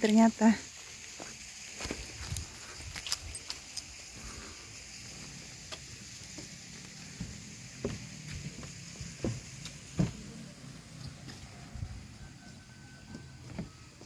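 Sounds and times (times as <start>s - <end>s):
outdoor hiss: 0.0s - 14.0s
footsteps on wooden planks: 5.2s - 10.3s, 13.0s - 14.0s.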